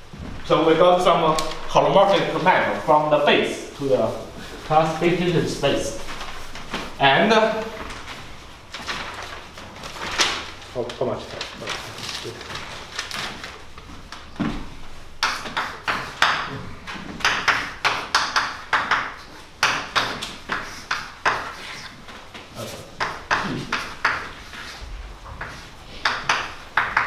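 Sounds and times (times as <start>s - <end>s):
chalk tapping and scratching: 1.0s - 7.9s, 15.2s - 16.6s, 17.2s - 24.8s.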